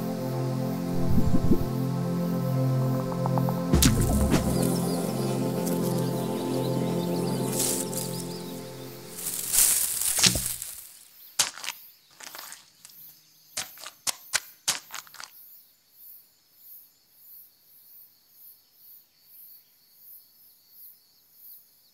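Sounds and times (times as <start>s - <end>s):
sharp pops and clicks: 3.2s - 4.8s, 9.6s - 10.8s, 13.6s - 15.3s
insect-like chirring: 3.2s - 6.4s, 7.4s - 15.6s.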